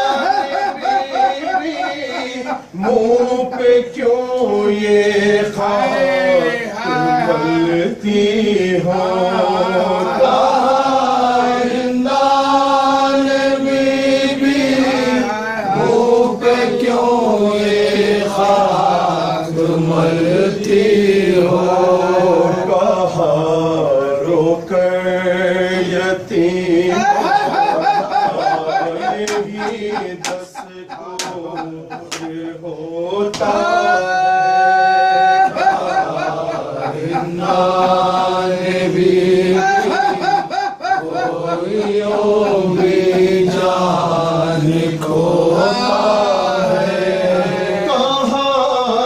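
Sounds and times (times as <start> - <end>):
men chanting a lament: 0.0 - 49.0
rhythmic chest-beating slaps: 27.6 - 33.7, 35.4 - 44.6.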